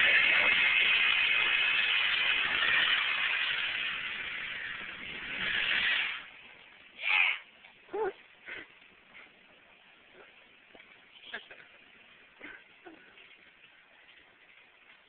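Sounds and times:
tires squealing in a burnout: 0.0 - 6.3.

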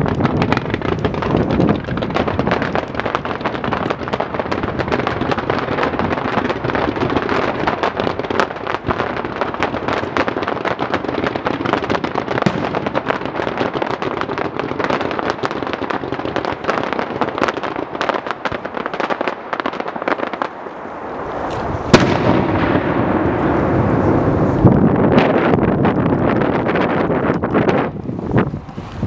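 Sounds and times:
fireworks crackling: 0.0 - 29.0
firework shell bang: 12.4 - 13.3, 21.5 - 24.7.

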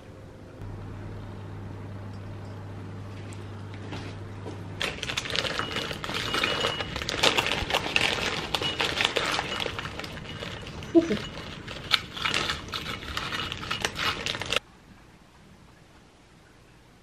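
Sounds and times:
low steady hum: 0.0 - 17.0
crisp packet crinkling: 4.8 - 14.6
crisps rattling into bowls: 4.8 - 14.6.

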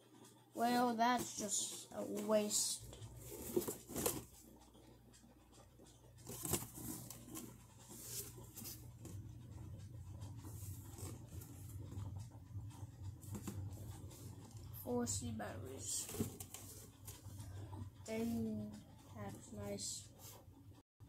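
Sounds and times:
steady low hum: 0.0 - 20.8
handling clicks and rustles: 2.9 - 4.7, 5.5 - 14.8, 15.7 - 18.2.

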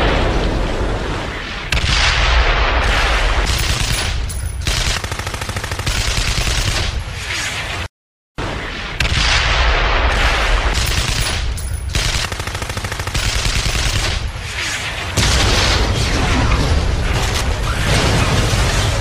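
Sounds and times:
machine-gun bursts: 3.5 - 7.0, 10.8 - 14.3.

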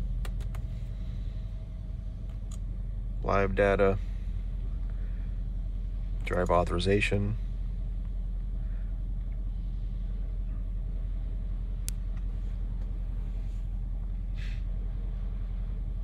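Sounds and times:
car engine idling: 0.0 - 16.0
sharp click: 0.2 - 0.7.

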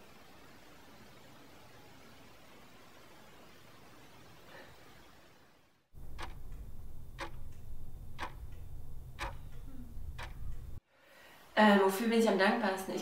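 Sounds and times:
clock ticking: 6.0 - 10.8
low hum: 6.0 - 10.8.

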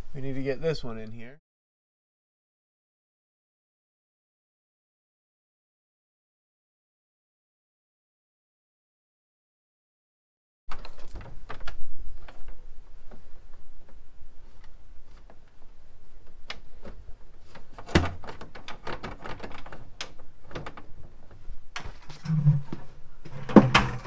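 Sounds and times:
cable clicks and rustles: 10.7 - 24.0.

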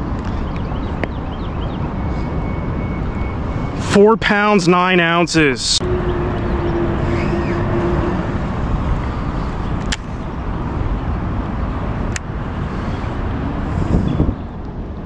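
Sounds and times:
road traffic rumble: 0.0 - 15.0
steady tone: 1.2 - 10.7.

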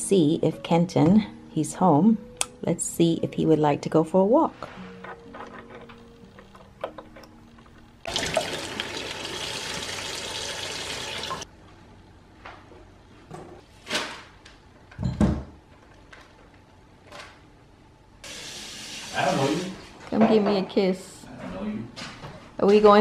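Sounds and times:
water running hard: 8.1 - 11.4, 18.3 - 19.7.

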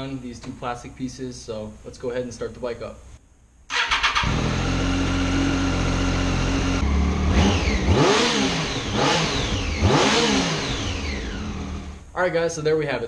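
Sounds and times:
motorcycle engine idling and revving: 3.7 - 12.1.

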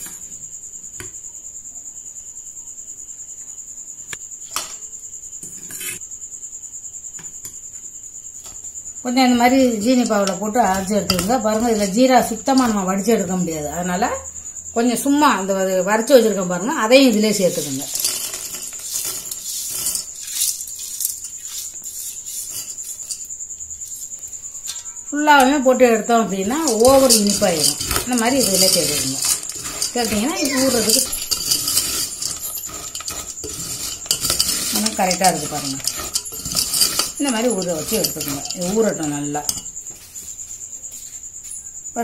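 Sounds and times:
cricket trilling: 0.0 - 42.0
spoon scraping bowl: 5.4 - 6.0, 9.3 - 13.5, 16.9 - 24.2, 25.3 - 40.1
pellets pattering on steel: 9.3 - 13.3, 16.9 - 23.2, 25.4 - 39.7
spoon clinking against bowl: 26.4 - 39.7.

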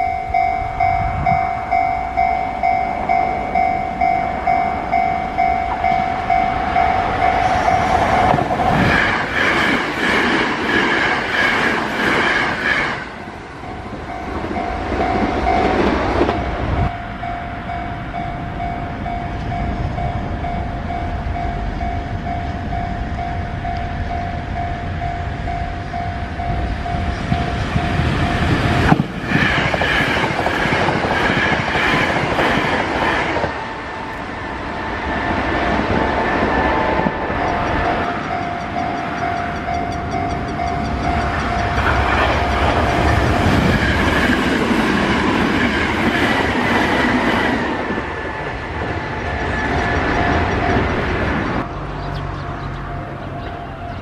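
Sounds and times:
level crossing bell ringing: 0.0 - 8.5, 37.3 - 43.2
approaching train rumble: 0.0 - 54.0
train passing at speed: 0.0 - 54.0.

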